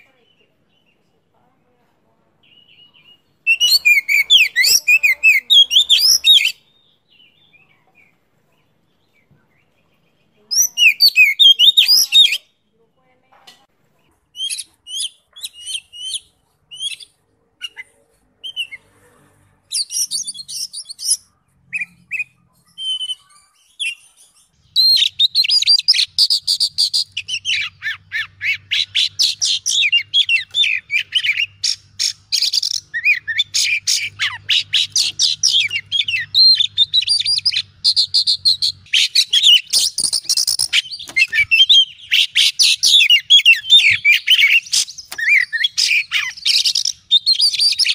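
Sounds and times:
bird singing whistled notes: 0:02.4 - 0:08.1, 0:10.6 - 0:12.5, 0:19.8 - 0:47.9.

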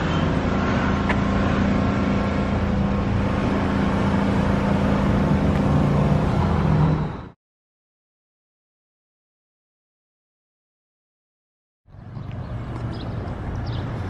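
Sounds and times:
lower hum: 0:00.0 - 0:07.3.

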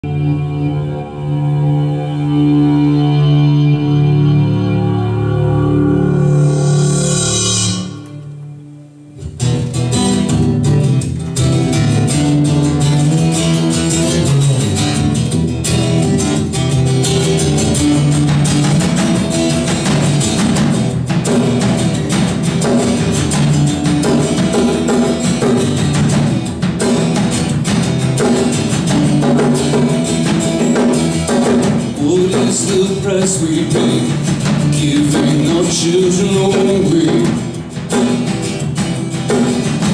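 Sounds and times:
strummed guitar: 0:00.0 - 0:39.9
held tone: 0:02.1 - 0:08.8
drum kit: 0:05.2 - 0:08.5, 0:09.2 - 0:39.9.

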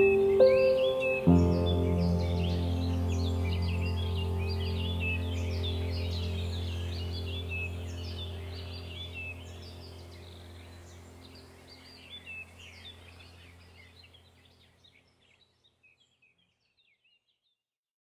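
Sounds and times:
birds chirping: 0:00.0 - 0:17.3
steady low hum: 0:01.4 - 0:14.4.

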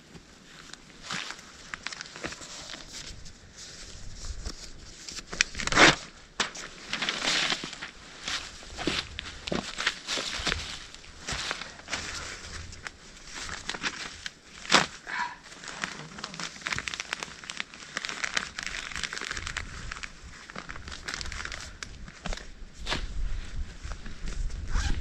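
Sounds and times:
dry leaves and twigs crunching: 0:00.5 - 0:23.2.

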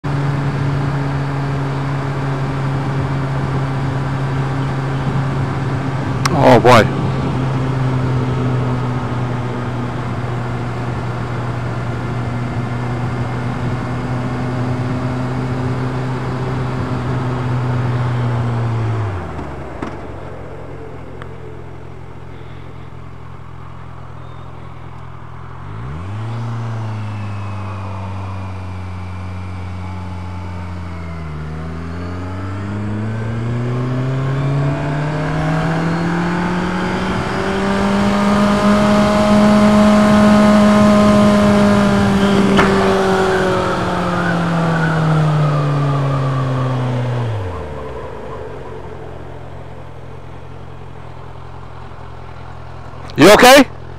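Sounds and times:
motorcycle engine revving: 0:24.2 - 0:53.6.

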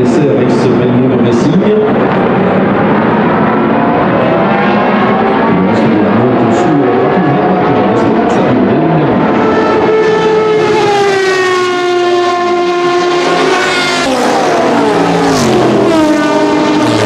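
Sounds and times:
racing car engine screaming past: 0:01.9 - 0:17.0.

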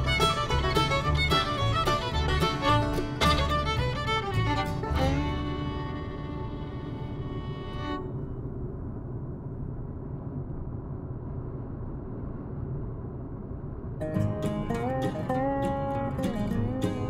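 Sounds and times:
guitar music: 0:00.0 - 0:08.0, 0:14.0 - 0:17.0
car interior road rumble: 0:00.0 - 0:17.0.

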